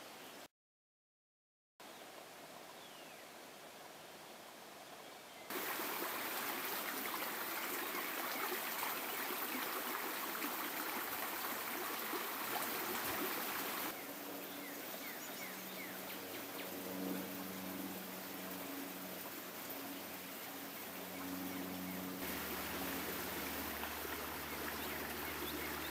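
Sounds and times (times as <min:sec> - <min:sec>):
quiet outdoor ambience: 0:00.0 - 0:00.5, 0:01.8 - 0:25.9
creek babbling over stones: 0:04.7 - 0:16.6, 0:17.2 - 0:25.9.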